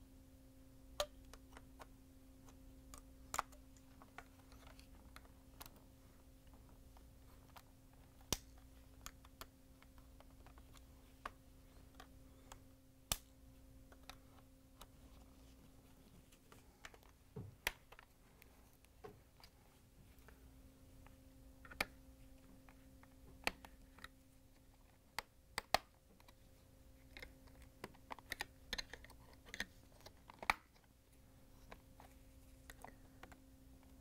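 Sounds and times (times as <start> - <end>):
faint steady hum: 0.0 - 34.0
sharp plastic snaps: 7.5 - 14.2, 25.1 - 26.4, 27.0 - 30.8.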